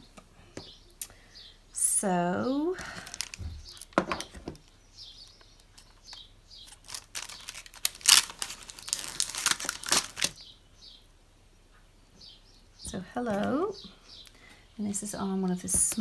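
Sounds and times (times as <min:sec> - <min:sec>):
faint bird chirps: 0:00.4 - 0:04.0, 0:04.6 - 0:07.6, 0:08.7 - 0:15.7
plastic packaging crinkling: 0:02.8 - 0:10.4.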